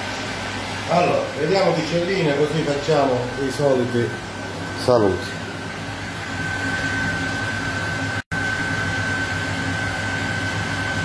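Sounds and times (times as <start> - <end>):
fan whirring with high whine: 0.0 - 11.0.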